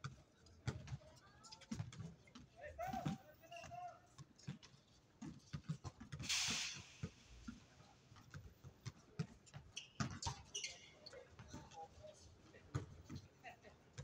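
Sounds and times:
short burst of noise: 6.3s - 7.0s
basketball bouncing on hard court: 8.2s - 10.4s.

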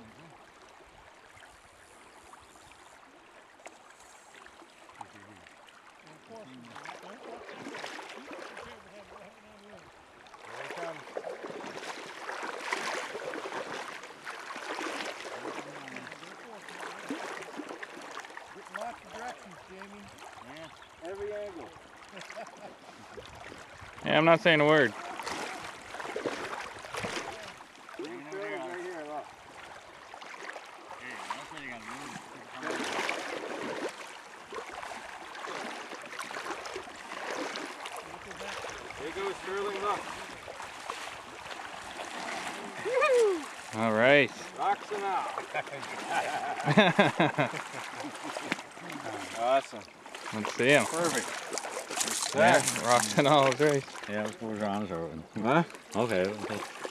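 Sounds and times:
river current rushing: 0.0s - 54.4s
fish thrashing and splashing: 10.4s - 19.1s, 24.9s - 28.2s, 29.6s - 54.4s, 55.6s - 56.9s.

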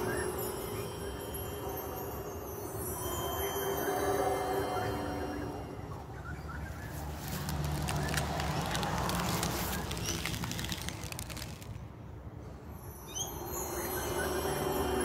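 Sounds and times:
outdoor background noise: 0.0s - 15.0s
leaves rustling against phone: 6.6s - 12.0s.

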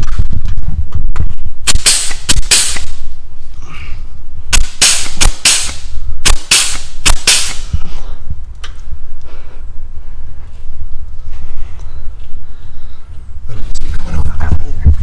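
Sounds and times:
air grease gun hissing bursts: 1.7s - 3.0s, 4.5s - 7.8s.

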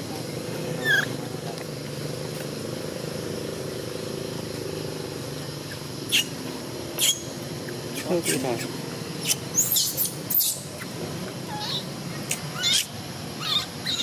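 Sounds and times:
low motor hum: 0.0s - 14.0s
baby monkey squeaks: 0.8s - 1.2s, 5.7s - 6.4s, 7.0s - 7.3s, 9.2s - 14.0s.

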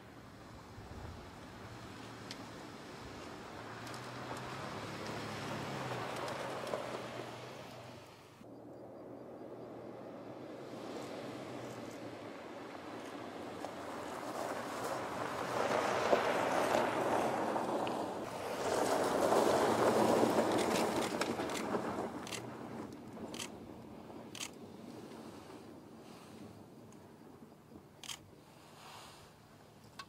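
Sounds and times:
tyres crunching over gravel: 1.8s - 8.0s, 10.7s - 25.6s.

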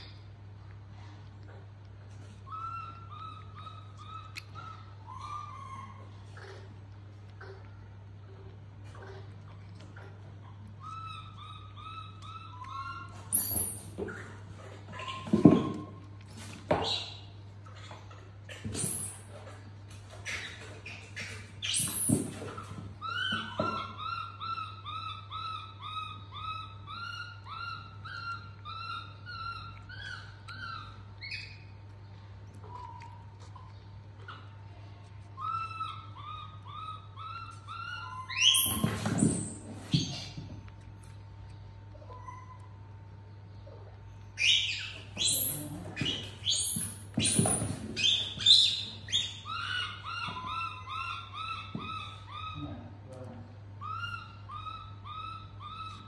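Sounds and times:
low steady hum: 0.0s - 56.0s
shrill animal calls: 2.4s - 6.6s, 10.4s - 14.3s, 20.2s - 31.8s, 32.6s - 40.4s, 44.3s - 53.0s, 53.8s - 56.0s
baby monkey chirping: 2.4s - 6.7s, 8.9s - 19.3s, 20.2s - 40.4s, 43.6s - 52.8s, 53.8s - 56.0s.

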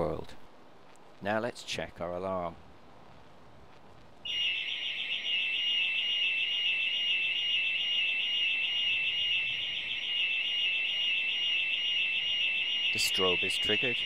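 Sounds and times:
burglar alarm siren warbling: 4.3s - 14.0s.

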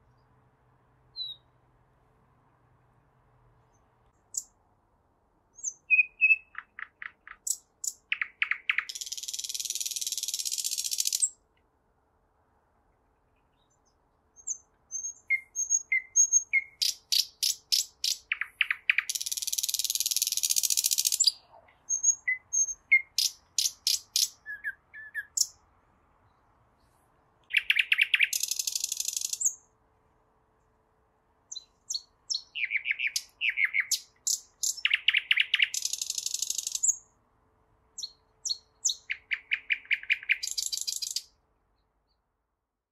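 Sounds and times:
nightingale singing: 1.1s - 1.6s, 3.7s - 4.6s, 5.5s - 11.4s, 13.4s - 25.6s, 27.4s - 29.7s, 31.5s - 37.2s, 38.0s - 42.3s.

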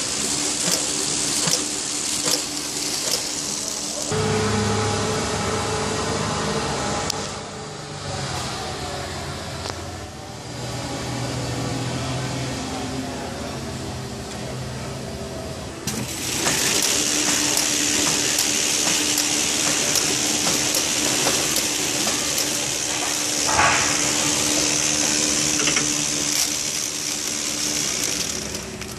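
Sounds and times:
wrapping machine hiss and hum: 0.0s - 8.9s, 15.7s - 28.9s.

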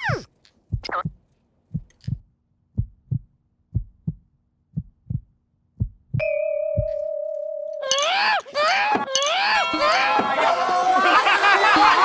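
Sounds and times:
heartbeat thumps: 0.7s - 7.0s.

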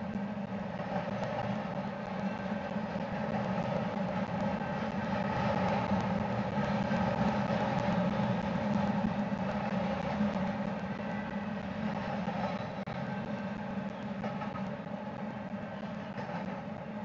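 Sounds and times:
train wheels rumbling on rails: 0.0s - 17.0s.

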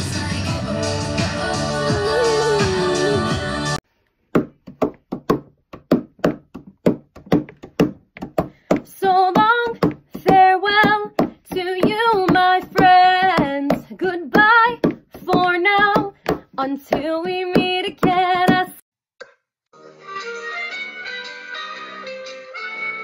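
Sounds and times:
woman singing: 0.0s - 3.8s, 8.8s - 18.8s.

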